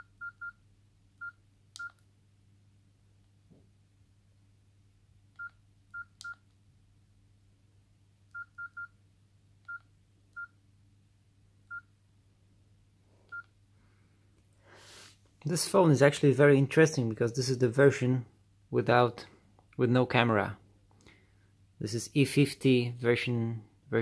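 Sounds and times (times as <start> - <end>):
phone keypad beeps: 0.0 - 0.6, 5.4 - 6.4, 8.3 - 8.9, 9.7 - 10.5, 11.7 - 11.9, 13.3 - 13.5.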